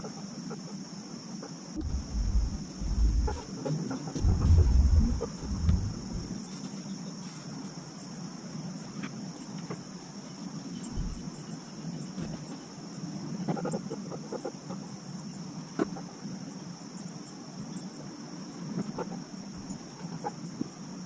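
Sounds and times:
insect chorus droning: 0.0s - 21.0s
low rumble: 1.8s - 3.5s, 4.2s - 6.4s.

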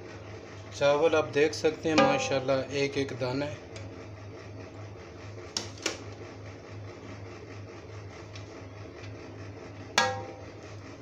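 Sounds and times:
low steady hum: 0.0s - 11.0s
dish knocking on cooking pot: 1.9s - 2.6s, 10.0s - 10.6s.

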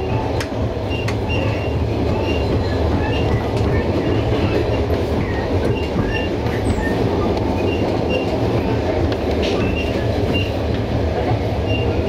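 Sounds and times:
train wheels rumbling on track: 0.0s - 12.0s
wheels squeaking: 0.8s - 8.8s, 9.4s - 10.6s.

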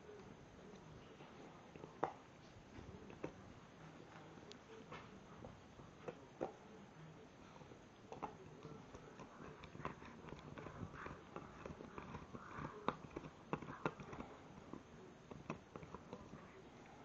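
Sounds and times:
teeth gnawing on antler: 8.1s - 16.5s.

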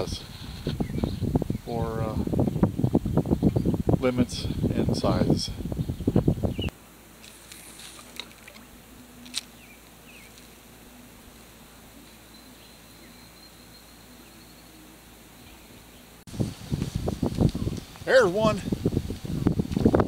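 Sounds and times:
faint steady high buzz: 6.7s - 20.0s.

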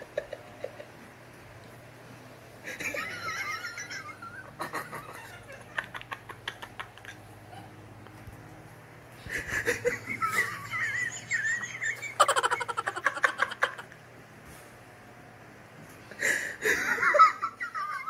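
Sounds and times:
high-pitched giggling: 9.4s - 14.0s.

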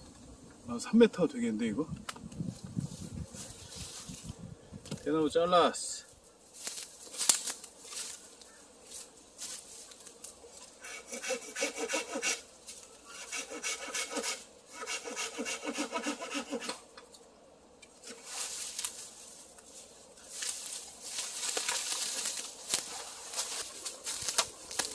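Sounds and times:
dry leaves rustling underfoot: 2.4s - 4.4s, 6.0s - 10.8s, 12.5s - 13.1s, 18.0s - 24.9s
hand saw cutting bamboo: 10.8s - 12.4s, 13.1s - 16.8s.

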